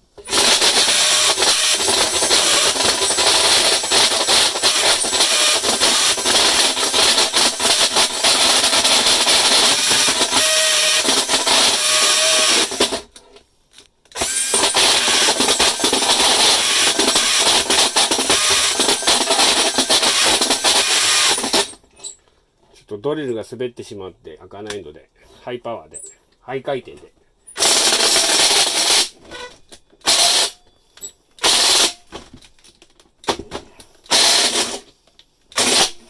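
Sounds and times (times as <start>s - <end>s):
drill with hole saw cutting: 0.2s - 13.1s, 14.1s - 22.2s, 27.6s - 30.6s, 31.4s - 32.0s, 34.1s - 34.9s, 35.5s - 36.0s.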